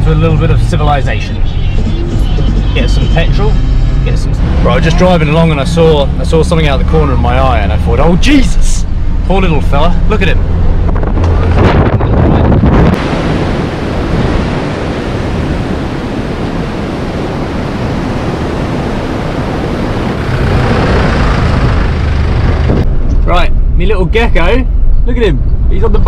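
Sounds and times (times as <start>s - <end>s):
low rumble: 0.0s - 15.8s, 19.3s - 26.0s
wind rushing over microphone: 8.0s - 26.0s
surf breaking on beach: 12.8s - 22.8s.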